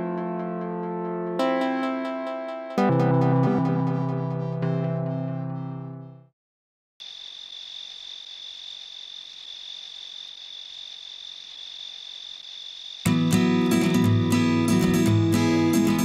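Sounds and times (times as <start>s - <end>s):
crickets trilling: 7.0s - 13.2s
strummed acoustic guitar: 13.1s - 16.0s.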